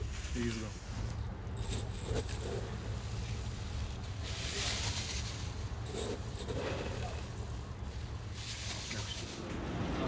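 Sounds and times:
dried berries rustling: 0.0 - 10.0
steady low rumble: 7.0 - 10.0.

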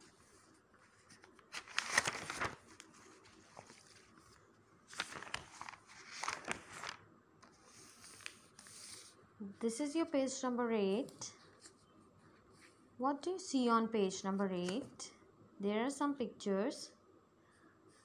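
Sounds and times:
book pages rustling: 0.0 - 9.2, 11.4 - 12.8.

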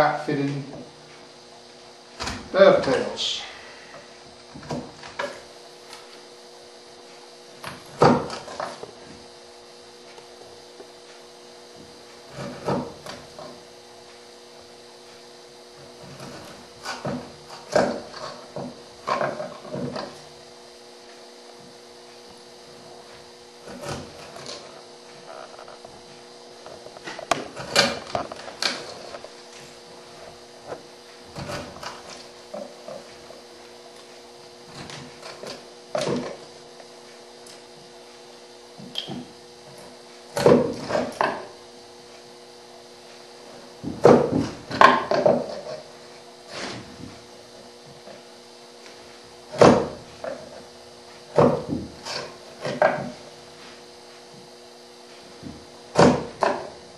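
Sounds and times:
steady low hum: 0.0 - 56.9
chisel cutting wood: 15.8 - 20.2, 23.6 - 24.8, 27.0 - 29.3, 31.3 - 33.0.

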